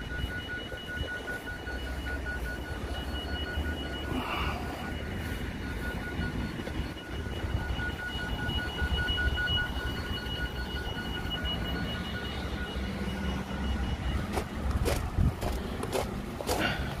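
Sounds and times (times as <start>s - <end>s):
high-pitched electronic tone: 0.0s - 14.8s
road traffic rumble: 0.0s - 17.0s
wind: 0.0s - 17.0s
footsteps: 0.1s - 7.2s, 14.2s - 17.0s.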